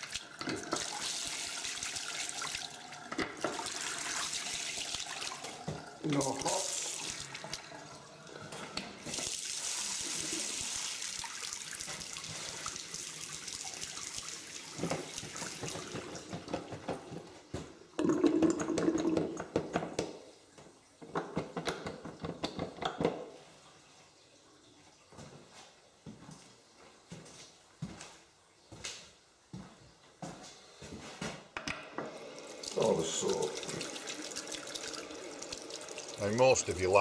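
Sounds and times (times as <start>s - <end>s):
tap water running into sink: 0.0s - 23.4s, 31.6s - 37.0s.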